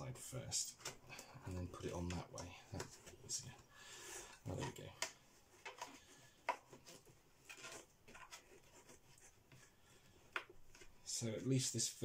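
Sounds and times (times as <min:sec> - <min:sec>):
faint rubbing: 0:00.7 - 0:11.6.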